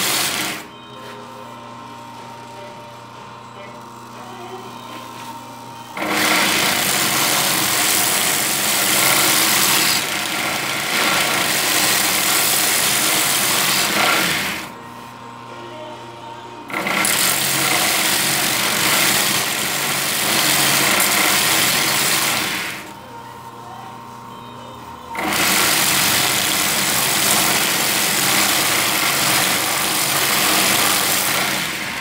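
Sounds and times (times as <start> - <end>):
belt sander grinding a blade: 0.0 - 0.7, 6.0 - 14.7, 16.7 - 22.9, 25.1 - 32.0.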